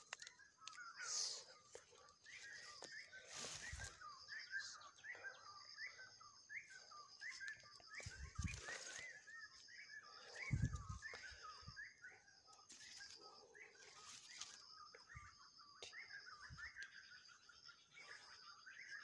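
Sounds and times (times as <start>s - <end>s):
small birds chirping: 0.0s - 19.0s
leaves rustling with handling thumps: 2.3s - 4.0s, 7.3s - 9.4s, 12.7s - 13.2s, 13.8s - 14.7s.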